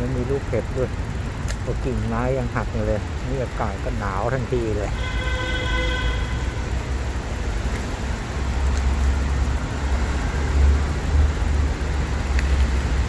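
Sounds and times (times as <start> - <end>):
held horn-like tone: 4.9 - 6.8.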